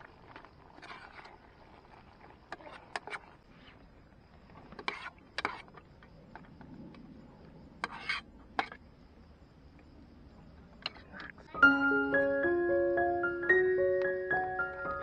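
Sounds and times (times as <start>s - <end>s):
utensil scraping cook pot: 0.6s - 3.8s, 4.7s - 5.8s, 7.8s - 8.8s.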